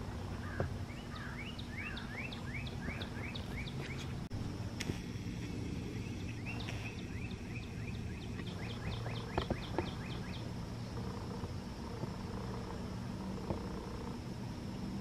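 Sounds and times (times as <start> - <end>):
bird chirping: 0.3 - 4.2, 5.9 - 11.5.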